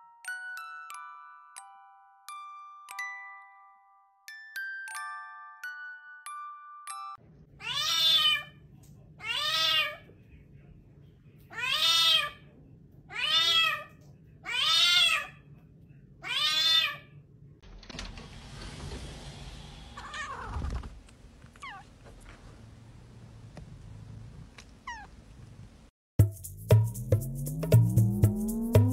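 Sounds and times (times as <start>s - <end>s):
background noise: 7.2s - 25.9s
cat meowing loudly: 7.6s - 8.6s, 9.2s - 10.0s, 11.5s - 12.4s, 13.1s - 15.4s, 16.2s - 17.1s, 20.0s - 20.8s, 24.8s - 25.1s.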